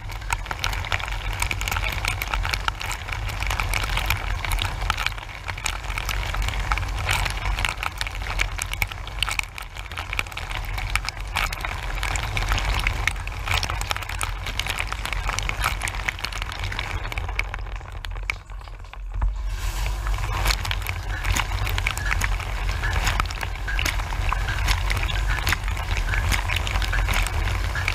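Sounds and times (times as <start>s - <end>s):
water jets splashing: 19.4s - 27.9s.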